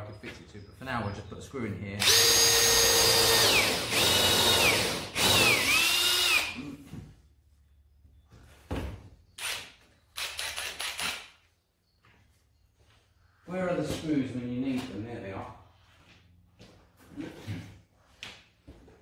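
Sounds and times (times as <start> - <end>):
cordless drill boring into wood: 2.0 - 6.6, 9.4 - 11.2.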